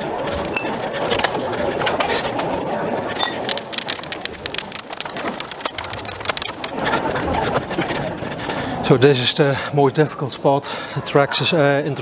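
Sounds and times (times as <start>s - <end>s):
hand tools clinking on metal: 3.2s - 6.8s.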